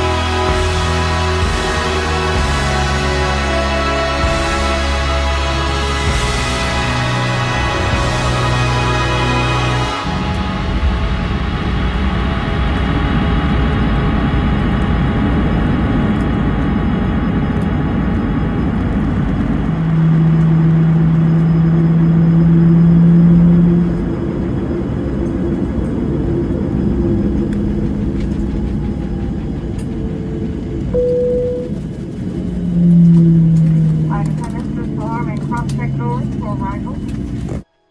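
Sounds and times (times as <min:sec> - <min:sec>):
background music: 0:00.0 - 0:14.6
low steady hum: 0:00.0 - 0:37.6
aircraft cabin rumble: 0:00.0 - 0:37.7.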